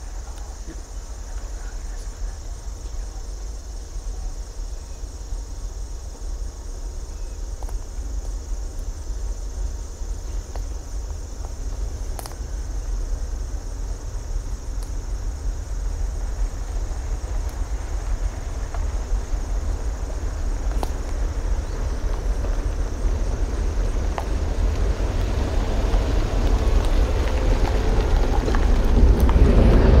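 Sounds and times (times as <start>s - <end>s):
high-pitched insect chorus: 0.0s - 30.0s
low rumble: 0.0s - 30.0s
faint clicks: 11.4s - 12.4s.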